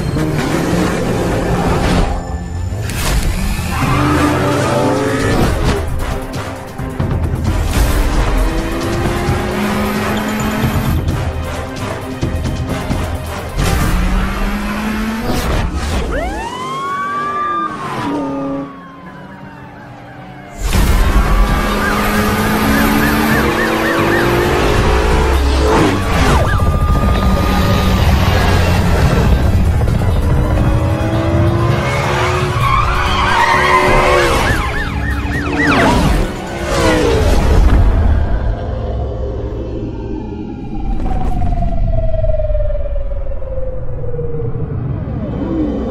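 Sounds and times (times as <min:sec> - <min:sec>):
music: 0:00.0 - 0:16.3, 0:20.6 - 0:41.7
car engine revving: 0:07.4 - 0:11.2, 0:13.3 - 0:18.7, 0:20.6 - 0:38.9
police siren: 0:15.8 - 0:37.1, 0:39.8 - 0:45.9.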